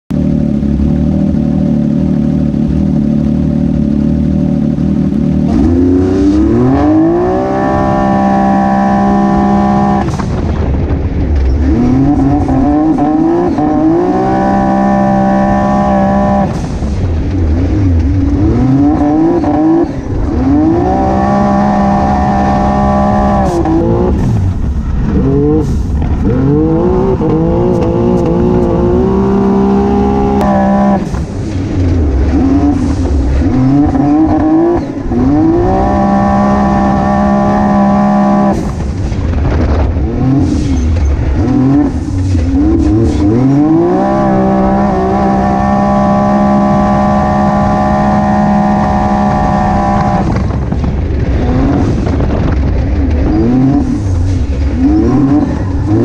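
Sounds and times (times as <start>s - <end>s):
engine revving: 0.1s - 56.0s.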